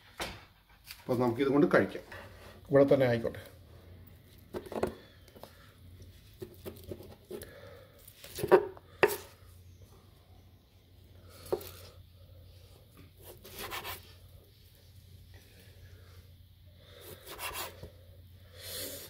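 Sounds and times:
knife slicing steak: 0:13.2 - 0:14.1, 0:17.2 - 0:17.8.

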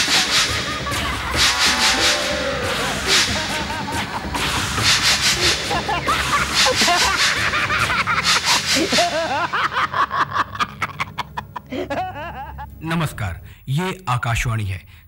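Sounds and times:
breathy cackling laugh: 0:02.6 - 0:04.8, 0:05.4 - 0:12.7.

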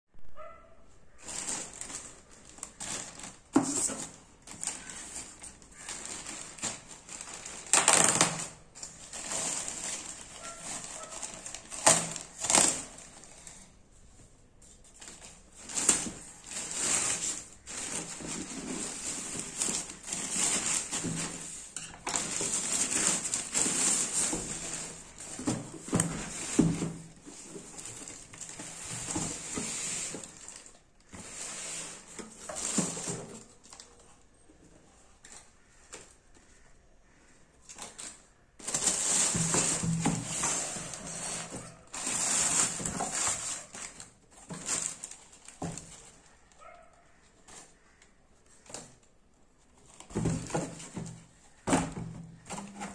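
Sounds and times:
plastic mailer bag crinkling: 0:01.1 - 0:13.8, 0:14.8 - 0:34.2, 0:37.7 - 0:49.0
tissue paper rustling: 0:01.1 - 0:13.8, 0:14.6 - 0:34.2, 0:37.8 - 0:46.7.

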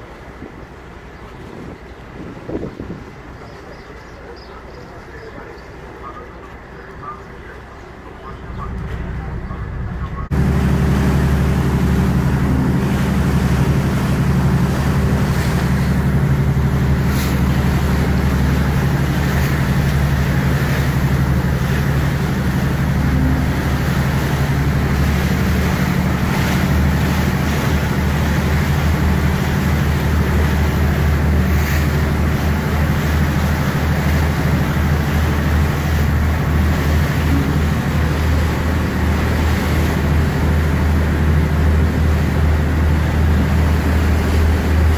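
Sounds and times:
ferry engine humming: 0:00.0 - 0:44.9
water rushing along hull: 0:00.0 - 0:44.9
wind noise: 0:01.4 - 0:03.3.

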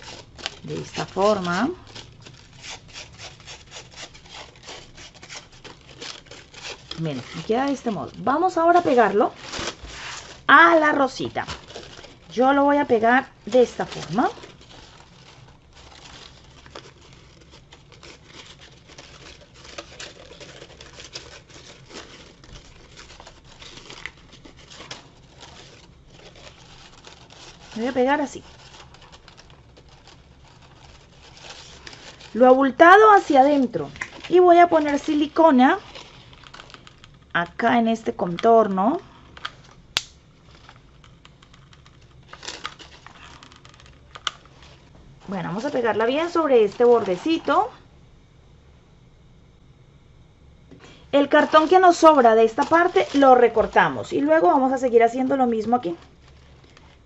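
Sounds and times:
crepe paper rustling: 0:00.0 - 0:39.8, 0:40.4 - 0:47.8, 0:50.8 - 0:57.0.

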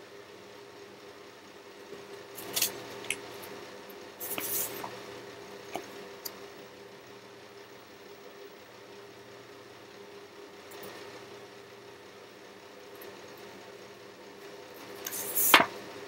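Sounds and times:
paper cards rustling: 0:04.2 - 0:04.9.

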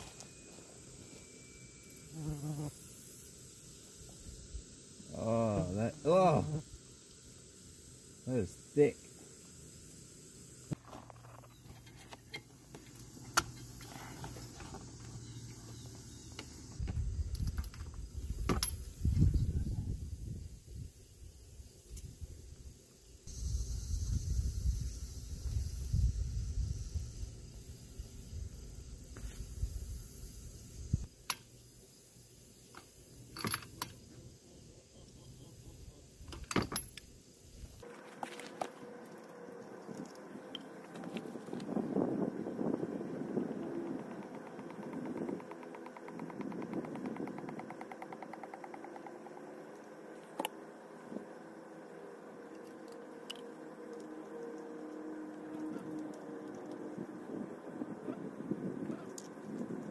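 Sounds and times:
atv engine running: 0:38.2 - 0:59.9
hand tools clicking on engine: 0:43.8 - 0:50.6.

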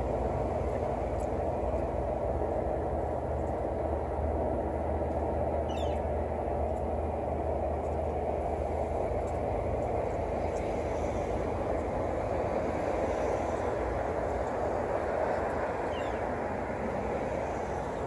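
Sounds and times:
low outdoor rumble: 0:00.0 - 0:18.0
small bird call: 0:05.7 - 0:06.0, 0:15.9 - 0:16.2.

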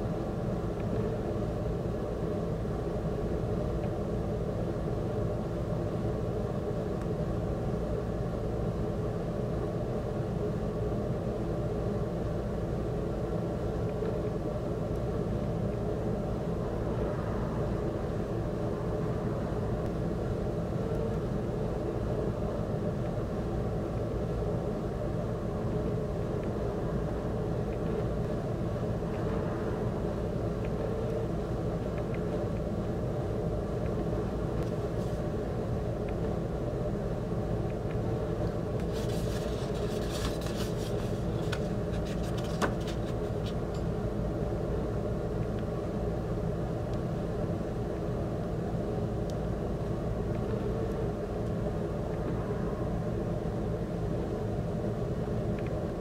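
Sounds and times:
low rumbling hum: 0:00.0 - 0:56.0
paper rustling and crinkling: 0:38.8 - 0:43.6.

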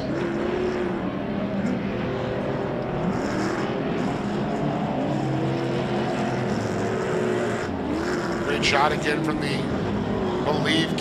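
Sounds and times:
race truck engines roaring: 0:00.0 - 0:11.0.

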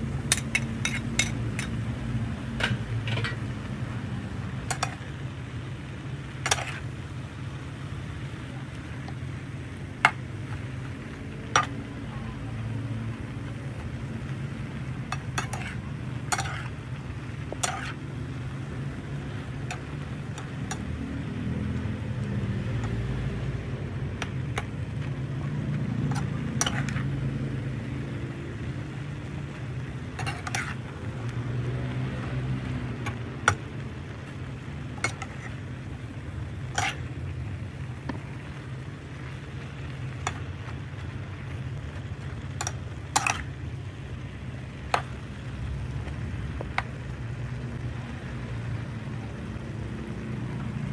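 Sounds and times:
metal spatula scraping frying pan: 0:00.2 - 0:01.8, 0:02.6 - 0:03.5, 0:04.6 - 0:05.1, 0:06.3 - 0:07.0, 0:15.0 - 0:16.8, 0:17.4 - 0:18.1, 0:26.0 - 0:27.2, 0:30.0 - 0:30.9, 0:34.9 - 0:35.8, 0:36.4 - 0:37.2, 0:42.6 - 0:43.5.

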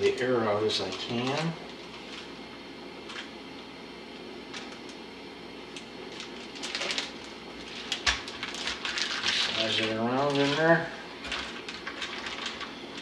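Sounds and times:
plastic bag crinkling: 0:00.0 - 0:02.3, 0:05.7 - 0:13.0.

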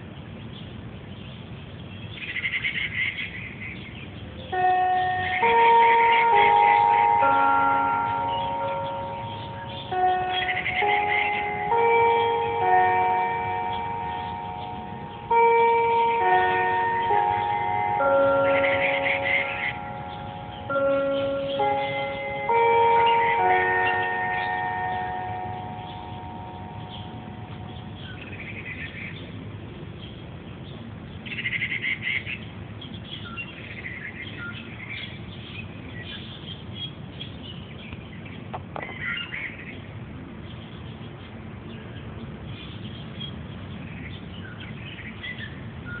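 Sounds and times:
small birds chirping: 0:00.2 - 0:46.0
bell ringing: 0:04.6 - 0:28.2.

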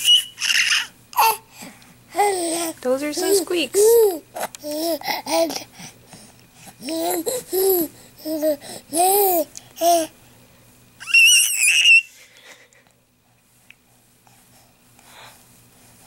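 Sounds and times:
baby squealing: 0:00.0 - 0:01.4, 0:11.0 - 0:12.2
baby babbling and laughing: 0:00.0 - 0:01.5, 0:02.1 - 0:05.7, 0:06.8 - 0:10.1, 0:11.0 - 0:12.1.

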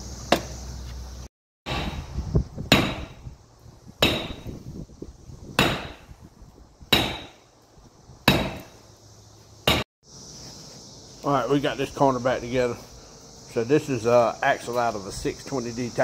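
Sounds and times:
sledgehammer striking metal: 0:01.7 - 0:02.1, 0:02.7 - 0:03.3, 0:04.0 - 0:04.5, 0:05.6 - 0:06.1, 0:06.9 - 0:07.4, 0:08.3 - 0:08.7.

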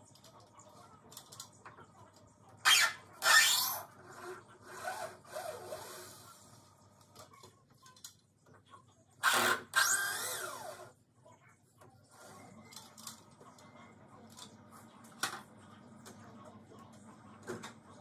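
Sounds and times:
cordless drill whining in bursts: 0:09.2 - 0:10.8.

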